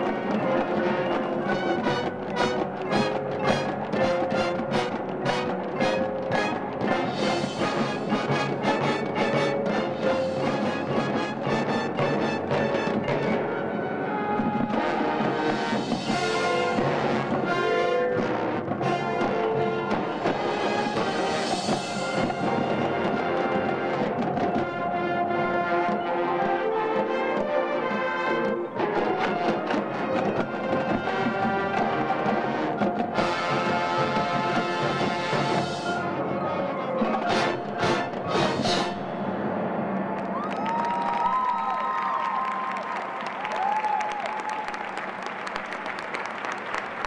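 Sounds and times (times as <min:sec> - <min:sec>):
marching band playing: 0:00.0 - 0:44.0.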